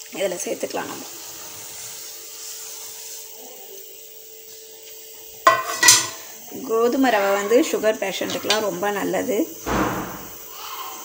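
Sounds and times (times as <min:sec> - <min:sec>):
boiling water bubbling: 0:00.0 - 0:03.4.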